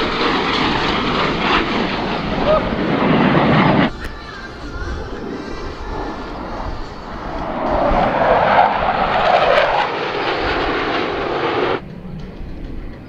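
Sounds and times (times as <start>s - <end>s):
jet engines passing overhead: 0.0s - 13.0s.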